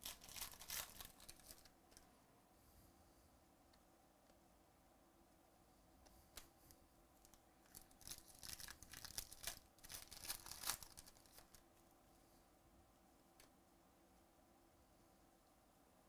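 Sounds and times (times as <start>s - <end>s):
foil wrapper tearing and crinkling: 0.0s - 1.7s, 7.7s - 11.6s.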